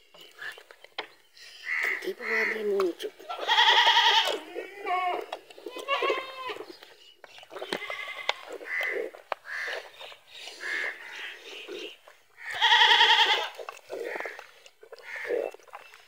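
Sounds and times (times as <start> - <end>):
goat bleating: 3.2 - 6.7, 7.5 - 9.9, 12.4 - 14.4.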